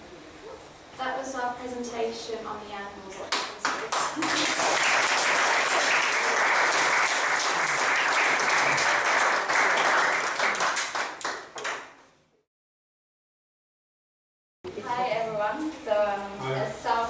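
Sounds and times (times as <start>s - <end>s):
audience applauding: 3.6s - 12.0s.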